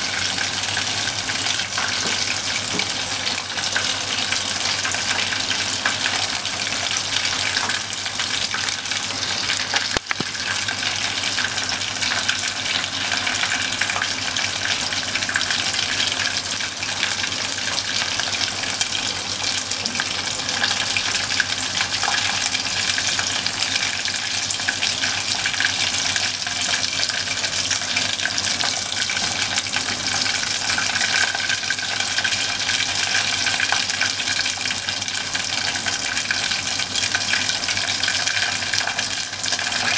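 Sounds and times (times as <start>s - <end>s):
meat sizzling in hot oil: 0.0s - 39.9s.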